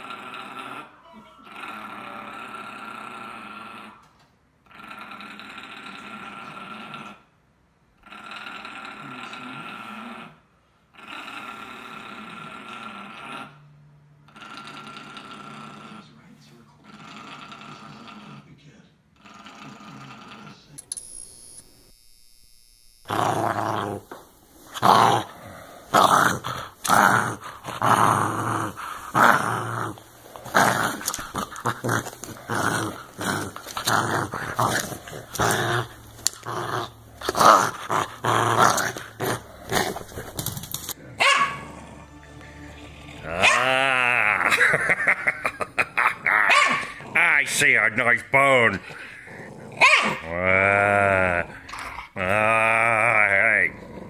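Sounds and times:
dog growling: 0.0s - 7.3s, 8.0s - 13.6s, 14.2s - 16.2s, 16.8s - 18.6s, 19.2s - 20.8s, 23.1s - 54.0s
dog barking harshly: 41.2s - 41.7s, 46.5s - 47.0s, 49.8s - 50.3s.

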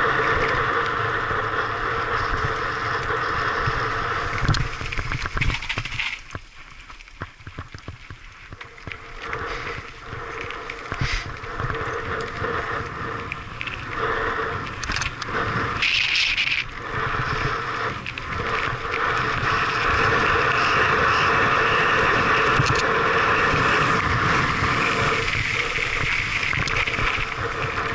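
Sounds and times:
wind on microphone: 0.0s - 6.4s, 7.4s - 27.9s
bike rattling over bumps: 0.0s - 27.9s
bike tyres crunching on gravel: 0.0s - 27.9s.

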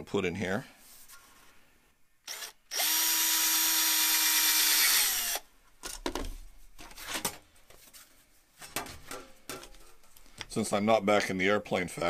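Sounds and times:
cordless drill boring through metal: 2.3s - 5.4s.

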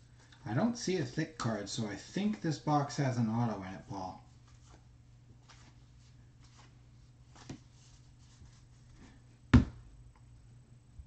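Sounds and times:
cards rustling and sliding: 4.4s - 8.5s
card stack thumping on table: 9.6s - 9.8s.

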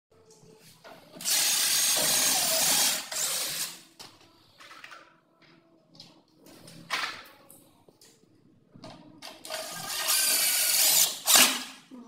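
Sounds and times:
cordless drill drilling: 1.2s - 3.8s, 9.5s - 11.6s.

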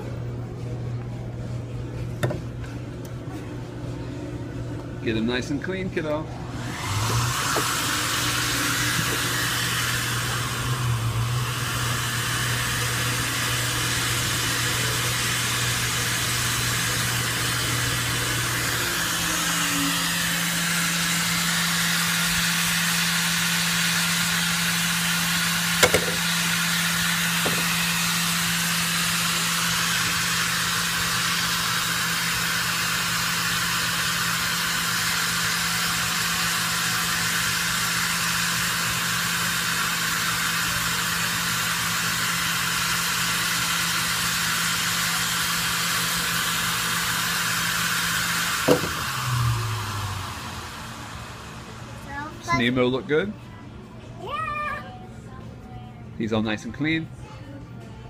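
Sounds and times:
motor hum: 6.0s - 54.0s
air blowing from nozzles: 6.4s - 52.7s.

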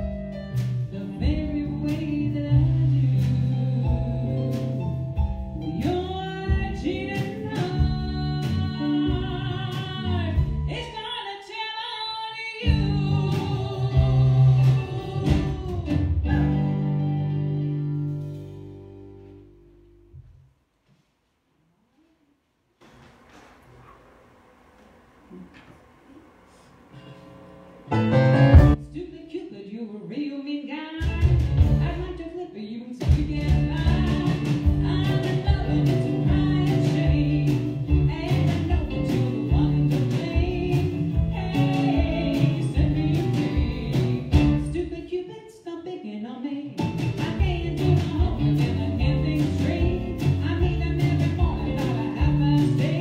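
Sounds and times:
live band playing: 0.0s - 11.1s, 12.7s - 19.5s, 25.3s - 28.8s, 31.0s - 32.2s, 33.1s - 44.9s, 46.8s - 53.0s
woman singing: 0.9s - 4.9s, 5.6s - 16.8s, 28.8s - 53.0s.

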